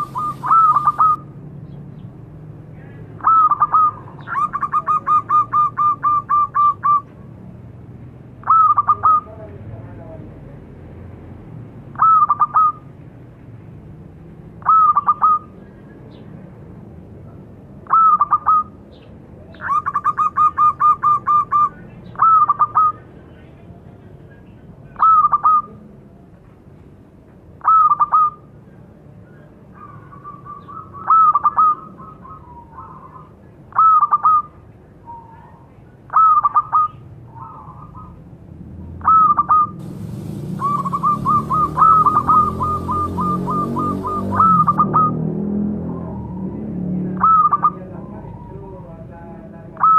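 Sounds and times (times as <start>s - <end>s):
dove cooing: 0.0s - 1.2s, 39.0s - 45.2s.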